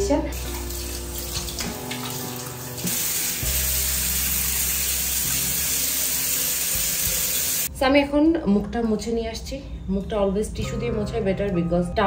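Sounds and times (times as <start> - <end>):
quiet background music: 0.0 - 12.0
face being washed: 0.4 - 7.7
sink tap running: 0.4 - 7.7.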